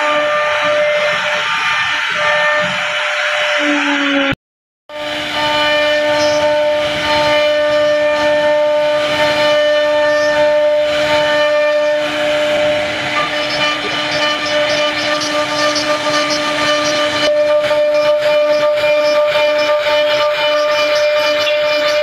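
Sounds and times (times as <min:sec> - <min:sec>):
router spindle whine: 0:00.0 - 0:22.0.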